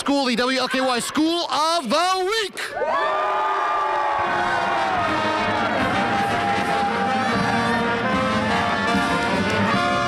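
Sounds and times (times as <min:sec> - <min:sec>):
pep band playing brass: 0:04.3 - 0:10.0.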